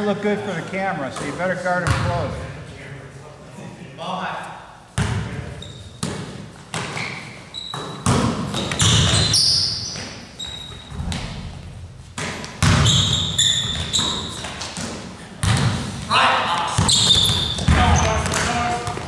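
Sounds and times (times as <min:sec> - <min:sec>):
basketball bouncing on gym floor: 0:01.8 - 0:02.2, 0:05.0 - 0:05.4, 0:07.7 - 0:16.0, 0:16.8 - 0:19.0
sneakers squeaking: 0:05.0 - 0:11.1, 0:11.9 - 0:19.0.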